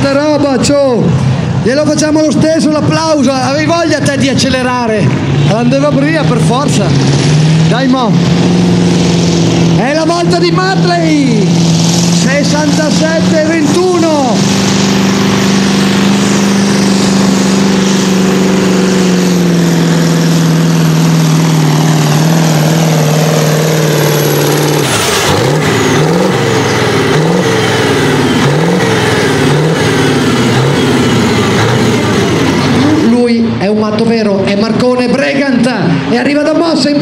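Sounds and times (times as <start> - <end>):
tractor engine revving: 0.0 - 37.0.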